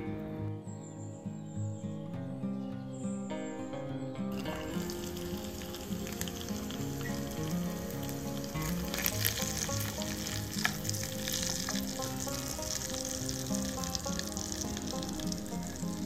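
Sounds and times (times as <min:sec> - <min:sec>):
shrimp frying in bubbling oil: 0:04.4 - 0:16.0
wooden spoon stirring in pan: 0:04.4 - 0:16.0.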